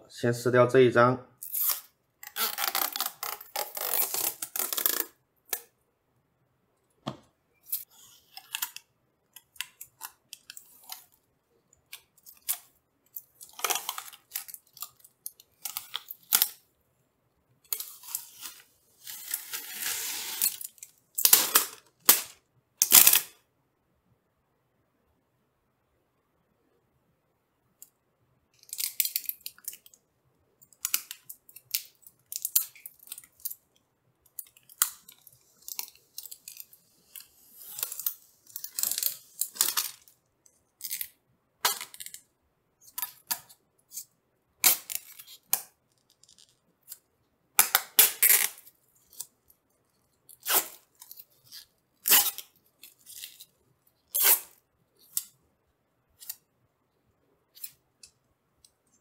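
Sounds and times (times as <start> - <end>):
plastic film being peeled: 1.4 - 5.2, 17.8 - 22.3.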